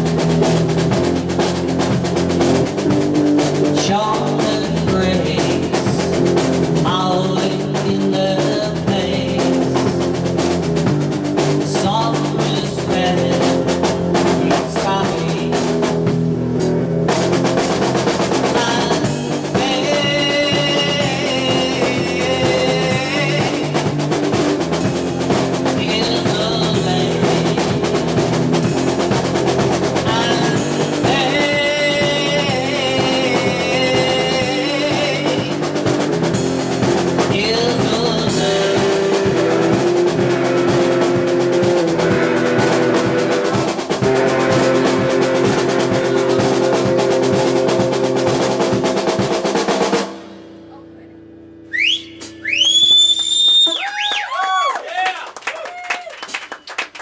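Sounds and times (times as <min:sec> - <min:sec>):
electric guitars: 0:00.0 - 0:50.6
drum kit: 0:00.0 - 0:57.0
person singing: 0:03.7 - 0:10.0, 0:11.6 - 0:15.7, 0:18.4 - 0:24.0, 0:25.1 - 0:28.2, 0:30.0 - 0:35.8, 0:37.2 - 0:39.8, 0:45.6 - 0:47.0.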